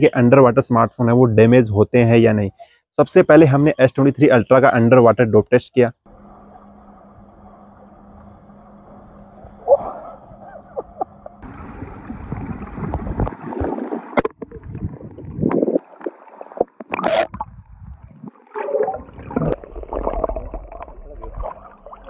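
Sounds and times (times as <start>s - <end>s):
underwater water sloshing: 6.4s - 22.0s.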